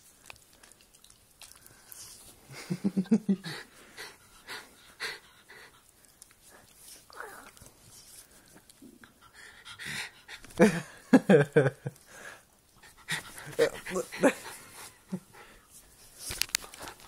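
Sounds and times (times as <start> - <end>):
dog panting and snuffling: 3.4 - 10.8, 12.2 - 17.0.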